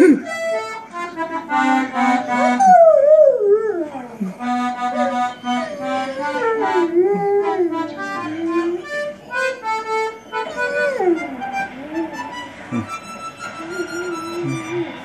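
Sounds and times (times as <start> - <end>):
polka music: 0.0 - 15.0
dog howling: 2.4 - 9.1, 10.3 - 12.3, 13.6 - 15.0.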